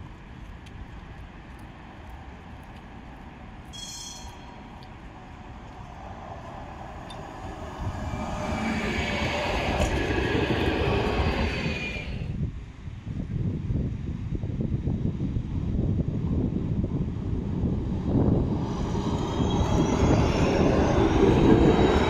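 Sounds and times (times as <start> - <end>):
thin high whining tones: 3.7 - 4.7, 18.5 - 22.0
tram wheels rumbling on track: 3.7 - 12.4, 16.1 - 22.0.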